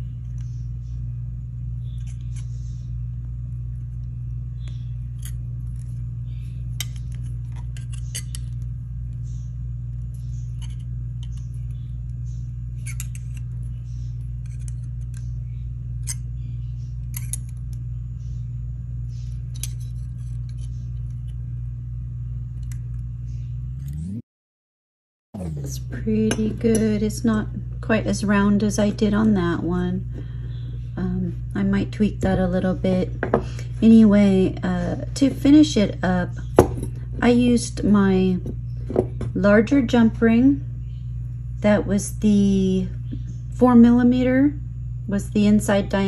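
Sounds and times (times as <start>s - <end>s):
steady low hum: 0.0s - 24.2s, 25.4s - 46.0s.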